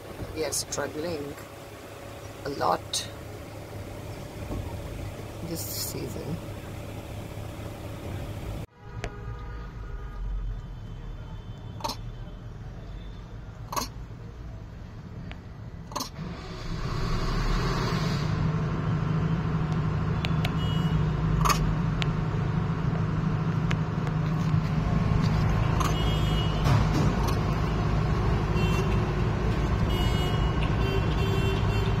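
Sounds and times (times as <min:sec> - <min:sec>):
vehicle engine running: 0:00.0 - 0:08.7, 0:14.0 - 0:32.0.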